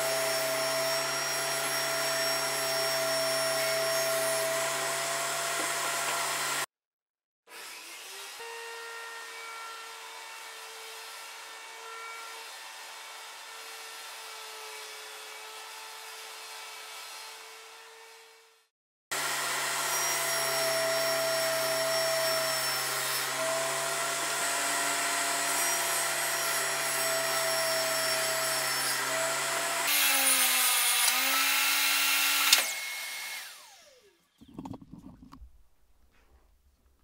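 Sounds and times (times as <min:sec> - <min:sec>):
table saw running: 0:00.0 - 0:06.7, 0:19.1 - 0:34.8.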